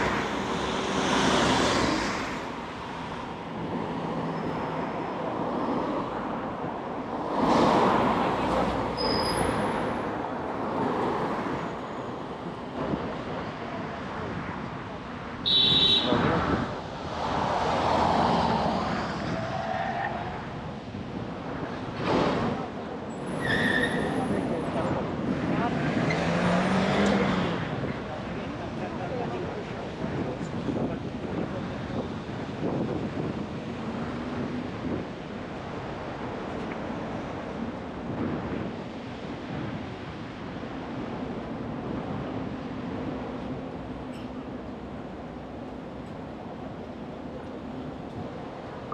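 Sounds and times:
city street rushing noise: 0.0 - 48.9
wind buffeting microphone: 27.5 - 44.0.

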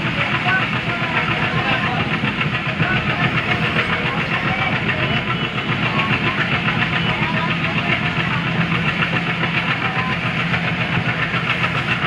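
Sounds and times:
coaches rumbling on rails: 0.0 - 12.0
diesel locomotive engine chugging: 0.0 - 12.0.

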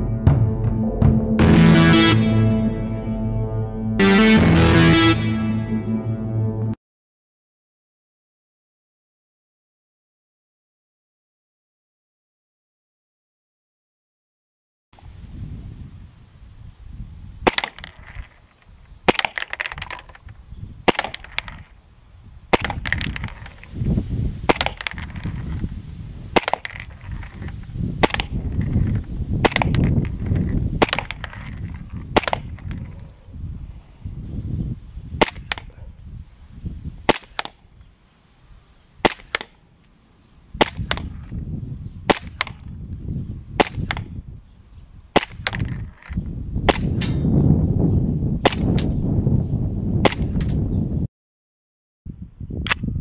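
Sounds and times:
low rumble: 0.0 - 6.8
airsoft pistol shots: 17.4 - 18.0, 19.1 - 20.1, 20.8 - 21.6, 22.5 - 23.5, 24.5 - 25.2, 26.4 - 26.8, 28.0 - 28.4, 29.4 - 29.9, 30.8 - 31.3, 32.1 - 32.6, 35.2 - 35.8, 37.1 - 37.6, 39.0 - 39.6, 40.6 - 41.2, 42.1 - 42.6, 43.6 - 44.1, 45.2 - 45.8, 46.7 - 47.3, 48.4 - 48.9, 50.0 - 50.6.

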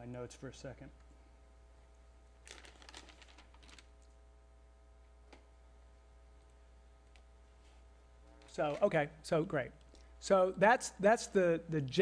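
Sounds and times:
steady low hum: 0.0 - 12.0
paper notes rustling: 2.5 - 3.9.

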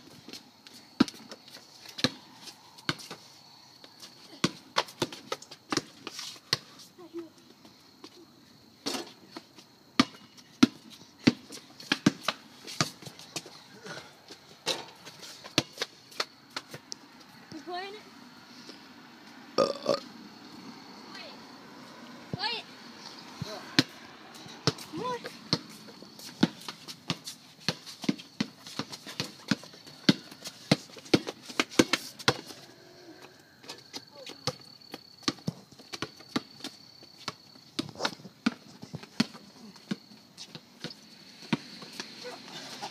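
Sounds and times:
basketball bouncing on pavement: 0.0 - 3.2, 3.8 - 6.7, 8.8 - 17.2, 22.3 - 22.6, 23.3 - 32.6, 33.7 - 42.8.

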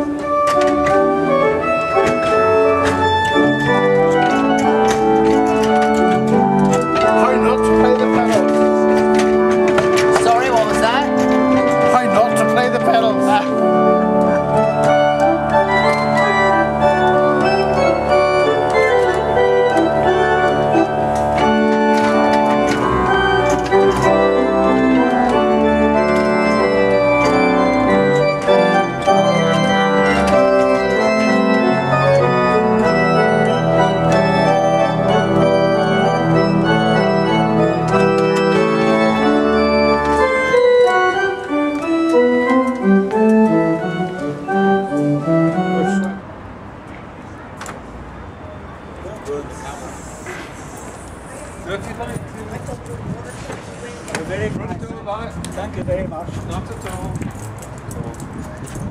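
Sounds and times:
pipe organ chords: 0.0 - 46.3.

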